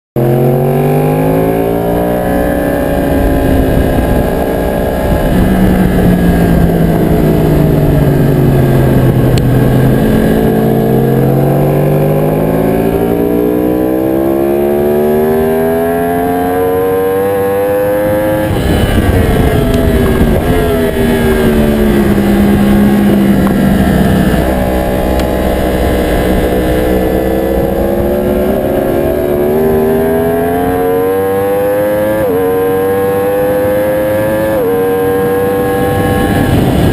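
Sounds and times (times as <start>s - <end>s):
motorcycle engine revving: 0.2s - 36.9s
wind noise: 0.2s - 36.9s.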